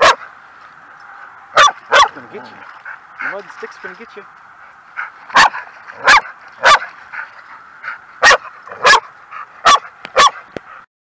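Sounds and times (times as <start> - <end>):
dog barking: 0.0 - 0.2, 1.6 - 2.2, 5.3 - 6.9, 8.2 - 10.4
dog yipping: 1.6 - 2.2, 5.3 - 6.9, 8.2 - 9.0, 9.6 - 10.4.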